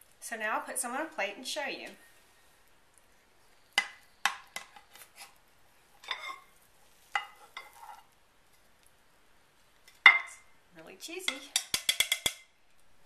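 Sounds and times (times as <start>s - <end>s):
metal spatula scraping ceramic dish: 6.0s - 6.5s, 7.2s - 8.1s.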